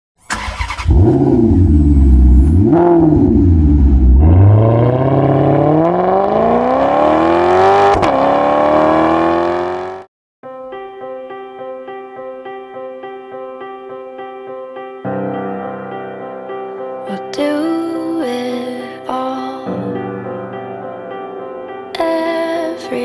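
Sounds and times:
car engine revving and accelerating: 0.6s - 10.1s.

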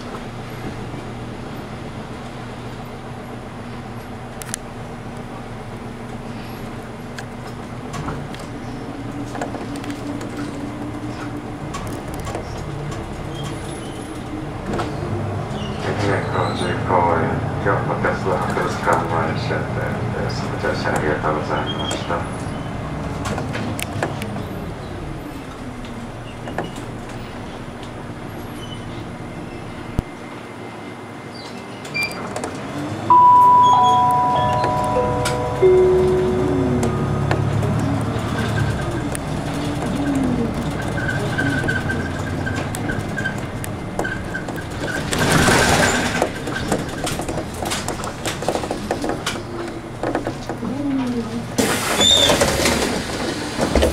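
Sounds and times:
bus engine hum: 0.0s - 53.9s
descending chime tones: 33.1s - 38.8s.

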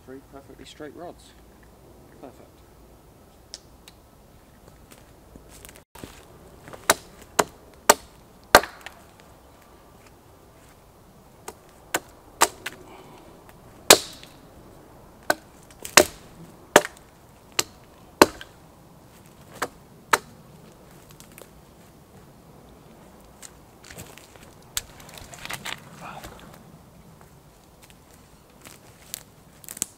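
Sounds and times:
axe chopping wooden poles: 6.0s - 9.2s, 11.4s - 14.4s, 15.2s - 18.6s, 19.4s - 20.4s.

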